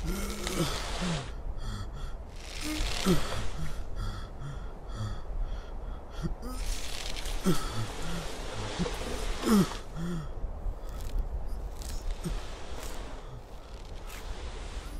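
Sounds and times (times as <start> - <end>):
wind gusting across grass: 6.5 - 14.9.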